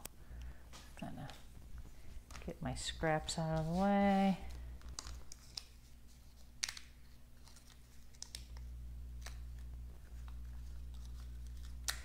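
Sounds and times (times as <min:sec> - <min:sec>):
low steady hum: 0:00.0 - 0:12.0
tape peeling and paper rustles: 0:03.3 - 0:12.0.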